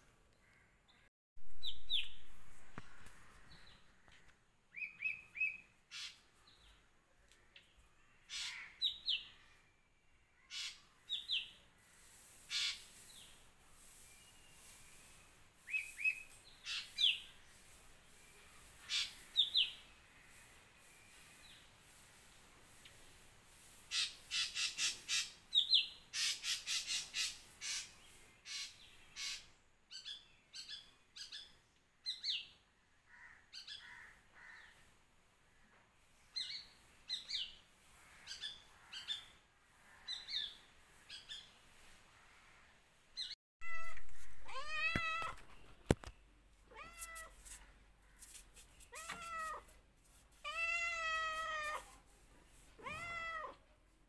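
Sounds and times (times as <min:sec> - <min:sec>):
cat meowing: 0:43.6 - 0:45.4, 0:46.7 - 0:47.4, 0:48.9 - 0:49.7, 0:50.4 - 0:51.9, 0:52.8 - 0:53.6.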